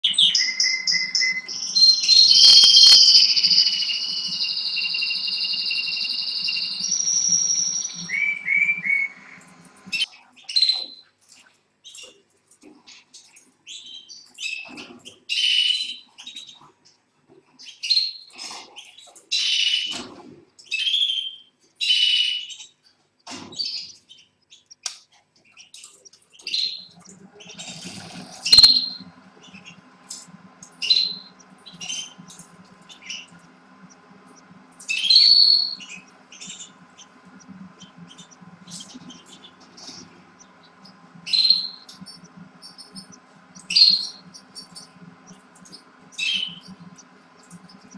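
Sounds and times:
steady low hum: 0.0 - 10.1, 26.5 - 47.9
canaries chirping: 0.0 - 11.0, 12.9 - 16.7, 17.6 - 20.0, 20.7 - 22.7, 23.6 - 47.9
sharp click: 2.4 - 3.5, 28.6 - 28.8.

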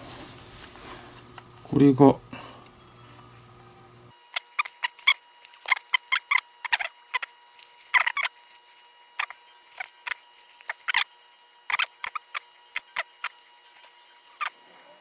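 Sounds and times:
leather lace squeaking through glove: 4.3 - 14.6.

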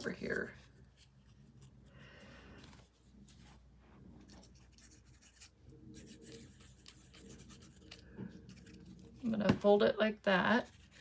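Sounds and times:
paper rustling and rubbing: 2.6 - 9.3, 10.6 - 11.0.

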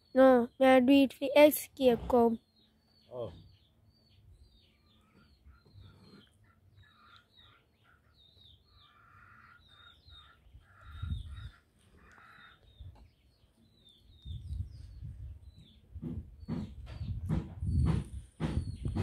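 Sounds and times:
birds chirping: 0.0 - 19.0
rasping bird calls: 4.8 - 12.9.

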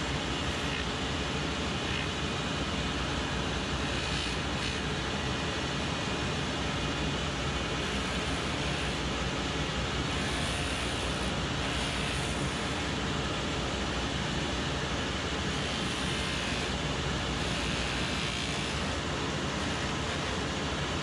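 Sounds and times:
finishing machine running: 0.0 - 21.0
sanding wheel grinding leather: 3.8 - 4.9, 10.1 - 12.8, 15.6 - 18.9.

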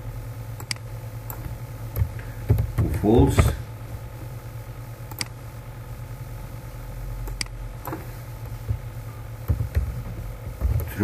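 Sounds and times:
low background hum: 0.0 - 11.0
computer clicks: 0.6 - 2.9, 5.1 - 5.4, 7.2 - 8.0.

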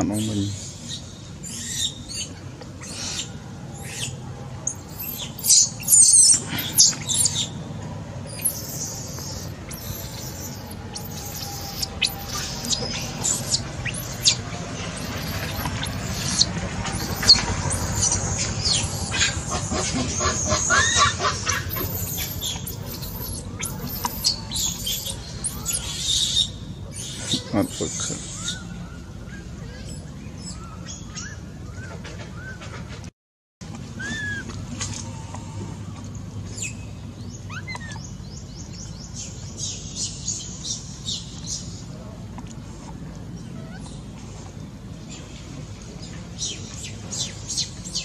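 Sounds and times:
low background noise: 0.0 - 48.0
high-pitched animal chirping: 8.3 - 14.4, 15.0 - 26.4.

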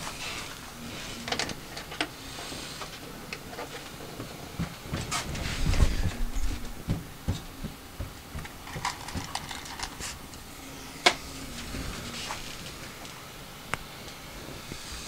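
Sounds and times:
small parts and tools clicking: 8.4 - 10.2.

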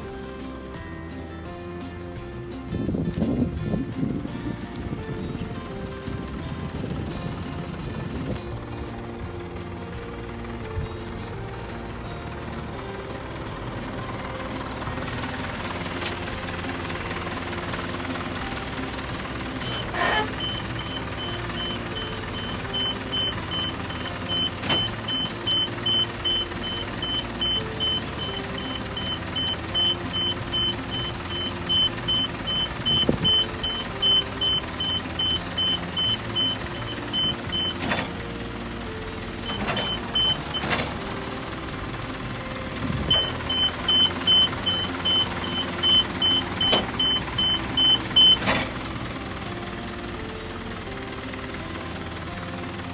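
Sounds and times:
hydraulic system humming: 3.2 - 52.9
high warning beeper: 19.6 - 38.0, 39.4 - 40.9, 43.1 - 48.6.

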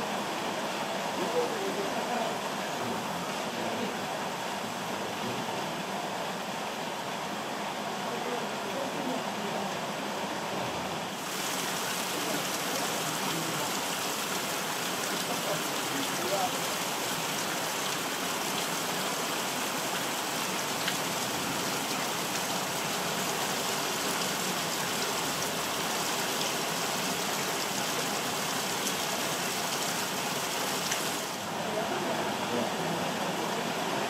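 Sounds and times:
heavy rain hiss: 0.0 - 34.0.

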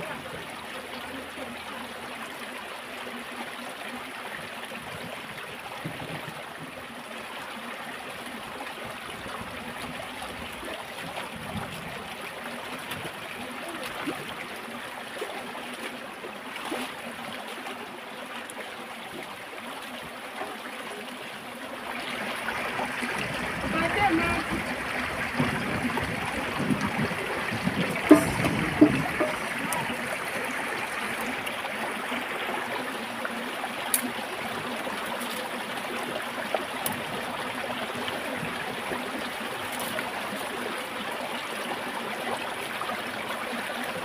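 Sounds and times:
stream trickling over rocks: 0.0 - 44.0
light splashes in water: 22.3 - 31.6.

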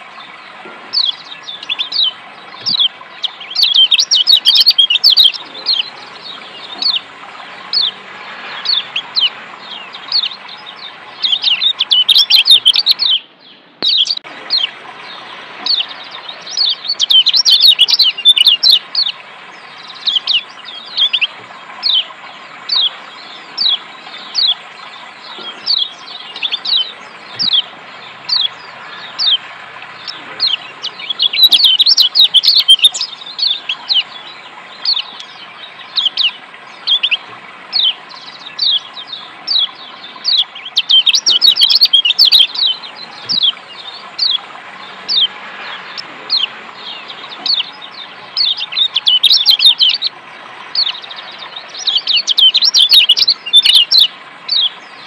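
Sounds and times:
bird chirps: 0.0 - 55.0
flowing water: 0.0 - 55.0
bird rapid chattering: 0.9 - 7.1, 7.7 - 13.2, 15.6 - 19.1, 25.2 - 44.5, 45.1 - 50.1, 50.7 - 54.7.

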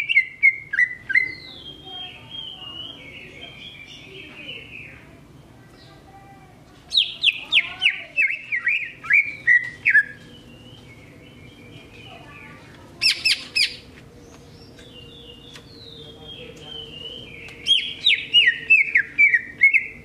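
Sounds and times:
quiet bird twittering: 0.0 - 6.1, 6.9 - 20.0
bird singing sharp whistled notes: 14.8 - 20.0.

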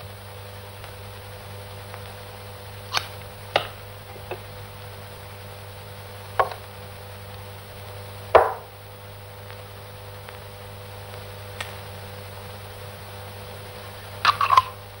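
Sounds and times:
steady low hum: 0.0 - 15.0
objects knocking on workbench: 6.4 - 6.6, 8.4 - 8.7.

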